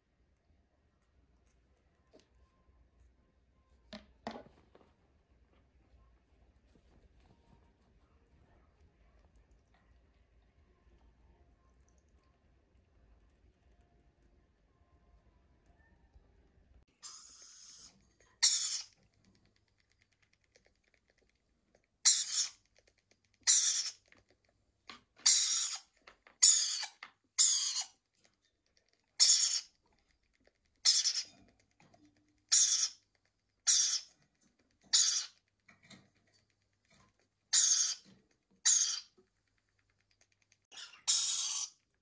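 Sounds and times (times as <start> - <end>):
parrot chick begging calls: 23.4 - 24.0, 25.2 - 27.9, 29.2 - 29.7, 30.8 - 31.3, 32.5 - 33.0, 33.7 - 34.1, 34.9 - 35.4, 37.5 - 38.0, 38.6 - 39.1, 40.7 - 41.8.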